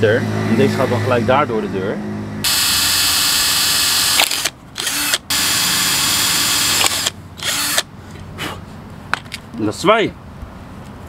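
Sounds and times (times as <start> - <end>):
electric drill running: 2.4 - 7.9.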